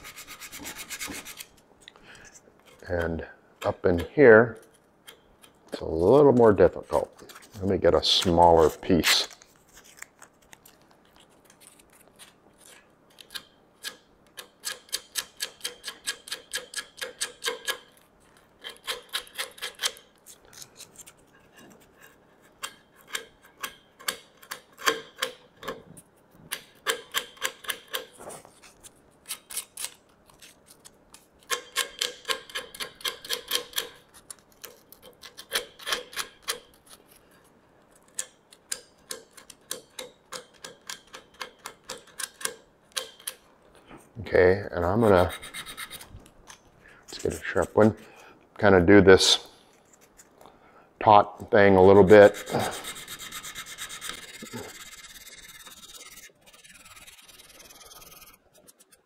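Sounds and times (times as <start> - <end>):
sandpaper rubbing on wood: 0.0 - 1.5, 45.1 - 46.0, 51.9 - 59.0.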